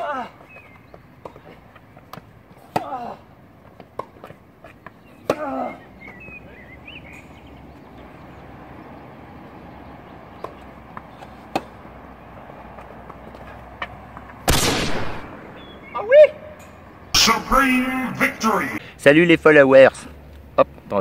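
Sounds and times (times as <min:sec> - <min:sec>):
tennis ball bouncing: 0:00.9 - 0:03.0, 0:03.6 - 0:06.5, 0:10.3 - 0:14.4
racket hitting tennis ball: 0:10.4 - 0:11.9
player crying out: 0:17.2 - 0:18.8.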